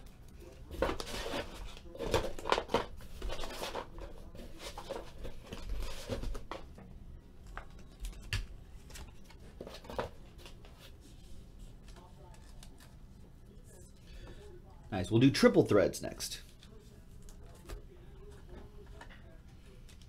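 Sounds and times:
trading cards rustling: 7.4s - 14.0s.

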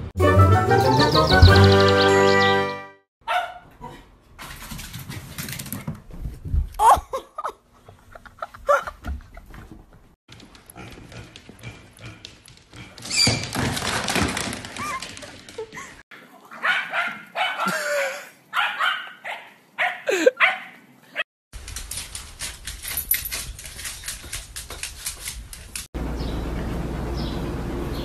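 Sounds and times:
dog barking: 3.2s - 3.7s, 16.5s - 17.8s, 18.5s - 20.8s.

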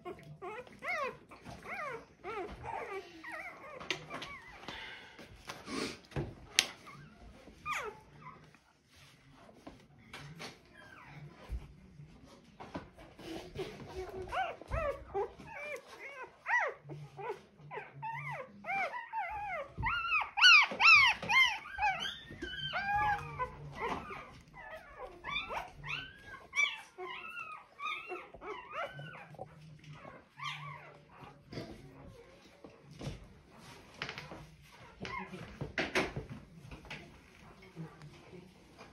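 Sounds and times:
puppy crying squeals: 17.8s - 29.3s.

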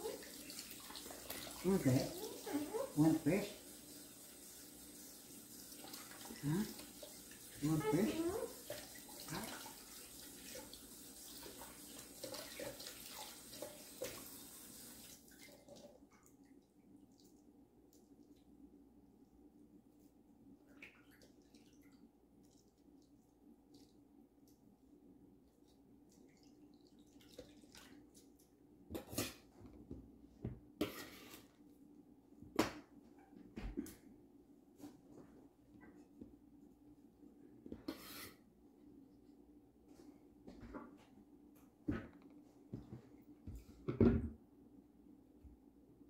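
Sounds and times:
water running from tap into sink: 0.0s - 16.0s.

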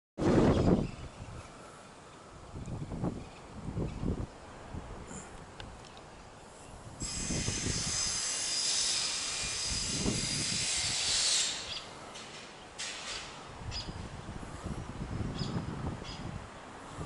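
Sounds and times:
high-pitched hiss: 6.6s - 11.9s.

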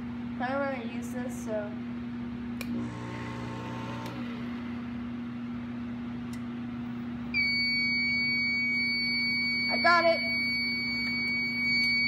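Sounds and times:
heat gun humming: 2.6s - 4.6s
fire alarm high-pitched tone: 7.4s - 12.0s.

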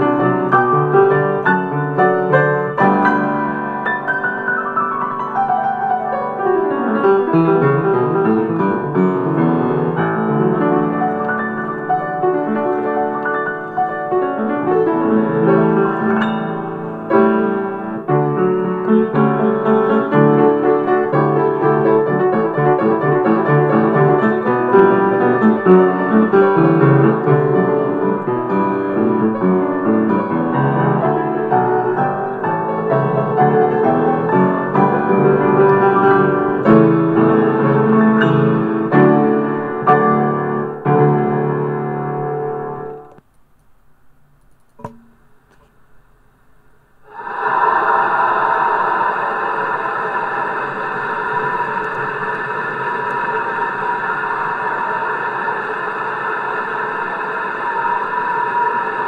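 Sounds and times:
piano music with quick notes: 0.0s - 43.2s.

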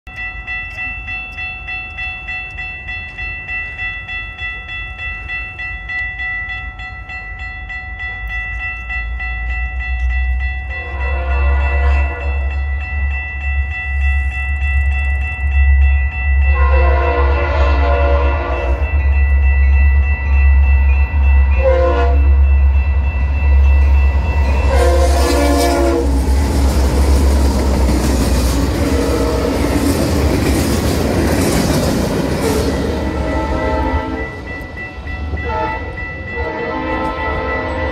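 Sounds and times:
crossing bell dinging: 0.1s - 37.9s
freight train passing roar and clatter: 0.1s - 37.9s
locomotive air horn blasts: 10.8s - 12.5s, 16.5s - 18.9s, 21.6s - 22.3s, 24.6s - 26.4s, 28.9s - 29.6s, 32.5s - 34.4s, 35.4s - 37.9s.

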